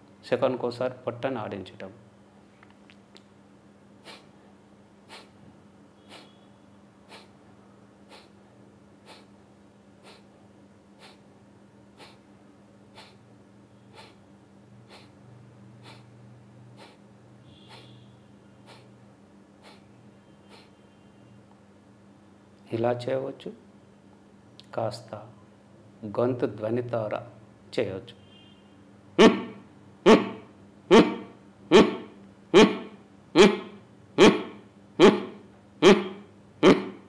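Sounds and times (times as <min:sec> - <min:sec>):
forceful nasal exhalations: 0:04.0 - 0:04.3, 0:05.0 - 0:05.4, 0:06.0 - 0:06.4, 0:07.1 - 0:07.4, 0:08.1 - 0:08.4, 0:09.0 - 0:09.3, 0:10.0 - 0:10.3, 0:11.0 - 0:11.2, 0:11.9 - 0:12.2, 0:12.9 - 0:13.2, 0:13.9 - 0:14.2, 0:14.8 - 0:15.2, 0:15.8 - 0:16.1, 0:16.8 - 0:17.0, 0:17.7 - 0:18.0, 0:18.6 - 0:18.9, 0:19.6 - 0:19.9, 0:20.5 - 0:20.8.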